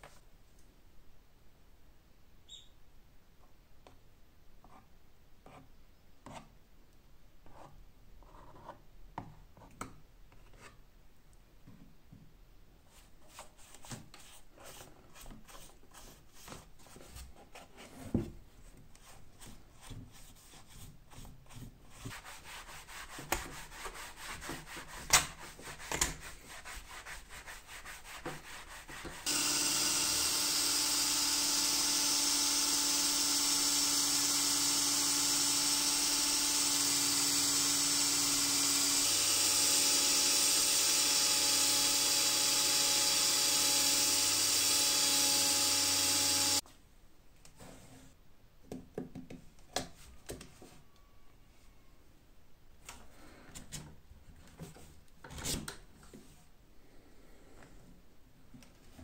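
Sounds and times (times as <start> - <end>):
electric drill running: 29.2 - 46.6.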